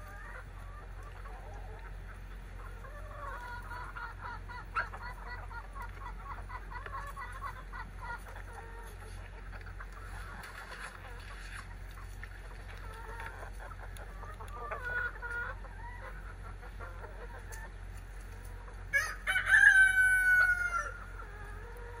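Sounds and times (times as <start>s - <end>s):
chickens clucking: 0.0s - 22.0s
rooster crowing: 18.9s - 21.0s.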